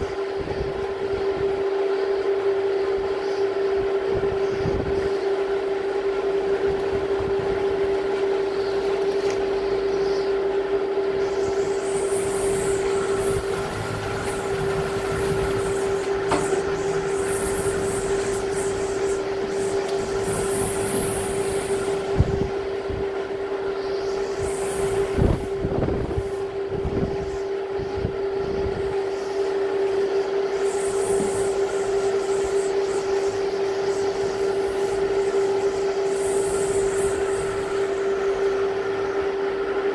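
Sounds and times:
wind whistling tone: 0:00.0 - 0:39.9
strong wind blowing: 0:11.5 - 0:29.3.

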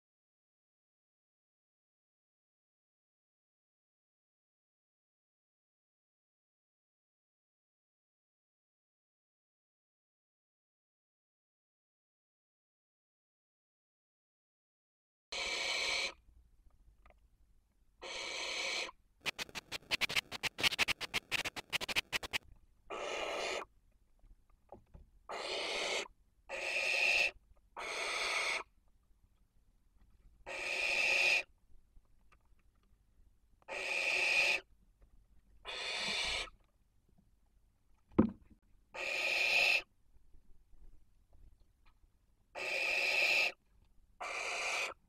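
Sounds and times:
owl rasping hiss calls: 0:15.3 - 0:16.2, 0:18.0 - 0:23.7, 0:25.3 - 0:28.6, 0:30.5 - 0:31.5, 0:33.7 - 0:34.7, 0:35.6 - 0:36.5, 0:39.0 - 0:39.9, 0:42.6 - 0:43.6, 0:44.2 - 0:45.0
rapid sharp clicks: 0:19.2 - 0:22.4
dull thump: 0:38.1 - 0:38.5.

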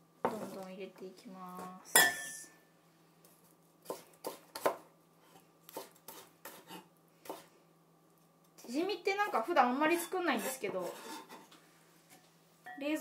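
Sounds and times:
knife chopping on cutting board: 0:03.8 - 0:04.8, 0:05.7 - 0:07.5.

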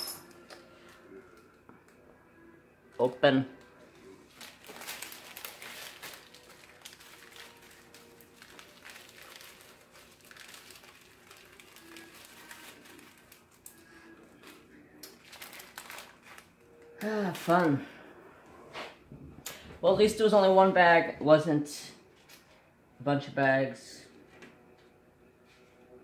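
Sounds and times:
plastic bag crinkling: 0:04.3 - 0:17.9.

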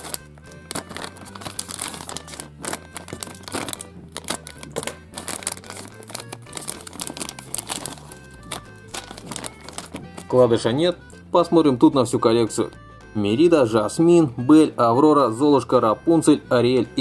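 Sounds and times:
wrapper crinkling: 0:00.0 - 0:10.4
background music: 0:00.0 - 0:17.0.

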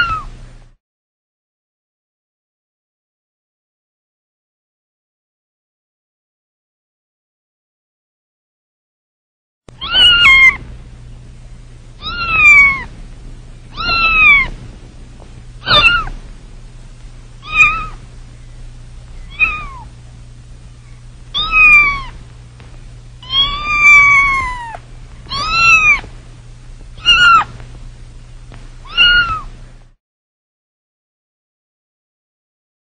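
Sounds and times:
kitten meowing: 0:00.0 - 0:00.3, 0:09.8 - 0:10.6, 0:12.0 - 0:12.9, 0:13.7 - 0:14.6, 0:15.6 - 0:16.2, 0:17.4 - 0:18.0, 0:19.2 - 0:19.9, 0:21.3 - 0:22.2, 0:23.2 - 0:26.1, 0:27.0 - 0:27.6, 0:28.8 - 0:29.5
faint low hum: 0:09.7 - 0:30.0.

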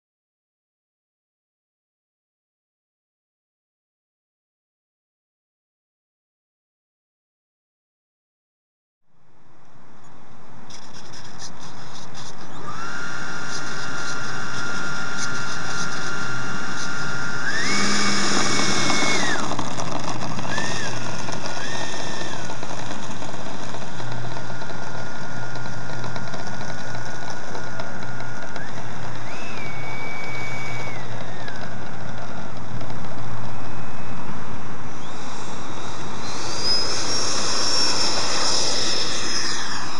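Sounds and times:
electric ducted fan whining: 0:09.1 - 0:39.9
steady hiss: 0:33.6 - 0:39.9.

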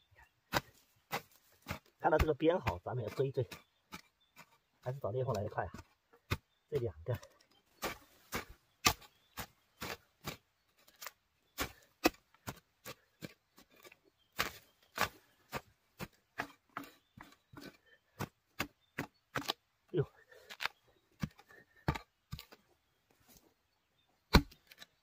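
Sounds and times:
mattock chopping into soil: 0:00.5 - 0:19.7, 0:20.3 - 0:22.6, 0:24.2 - 0:25.0.

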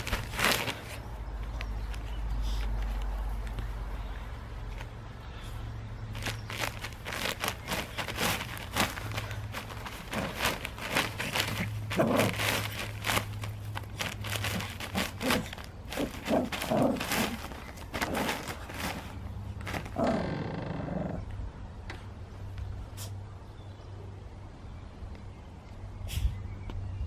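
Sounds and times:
plastic bag crinkling: 0:00.0 - 0:03.8, 0:06.1 - 0:20.2
puppy growling: 0:07.1 - 0:13.3, 0:14.0 - 0:21.3.

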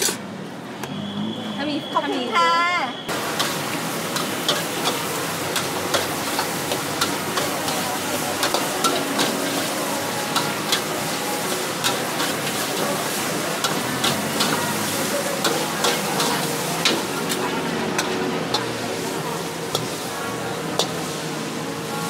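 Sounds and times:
rice sizzling in a wok: 0:03.1 - 0:22.0
metal spatula scraping a wok: 0:03.4 - 0:17.4.

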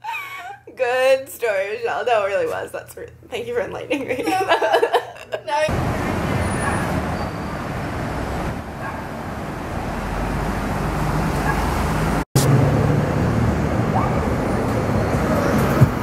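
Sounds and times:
car and tyre noise: 0:05.7 - 0:16.0.

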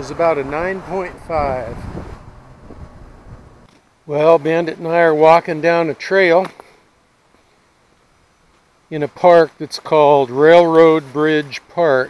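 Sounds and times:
low outdoor rumble: 0:00.0 - 0:05.2.

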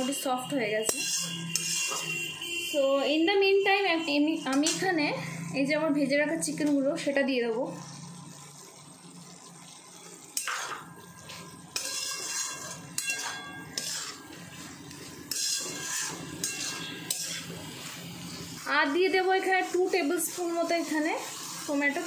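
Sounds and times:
metal spatula scraping metal pan: 0:00.0 - 0:02.8, 0:03.8 - 0:05.6, 0:10.4 - 0:22.0.

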